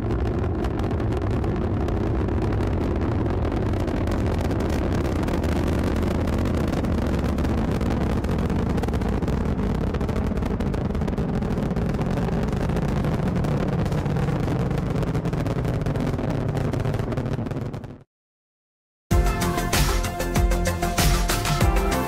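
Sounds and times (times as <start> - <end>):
rocket engines rumbling and crackling: 0.0 - 18.0.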